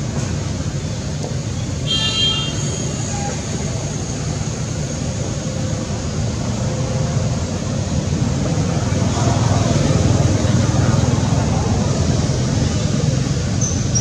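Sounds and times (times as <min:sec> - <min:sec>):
low outdoor rumble: 0:03.3 - 0:13.6.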